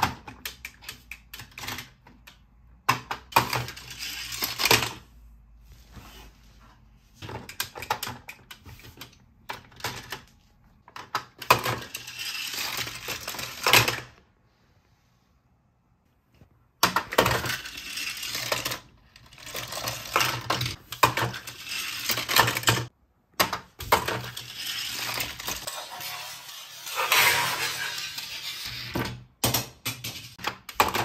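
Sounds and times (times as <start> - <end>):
toy car rattling on plastic track: 3.1 - 5.0, 11.1 - 14.1, 16.8 - 22.9, 23.8 - 29.1.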